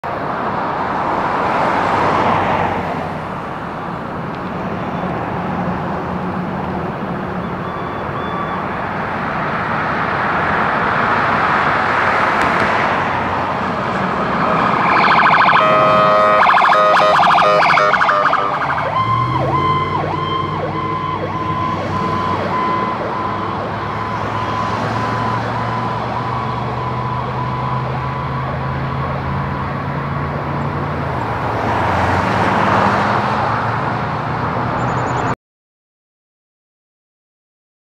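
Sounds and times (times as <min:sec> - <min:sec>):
cars passing: 0:00.0 - 0:35.4
emergency vehicle siren: 0:10.1 - 0:35.3.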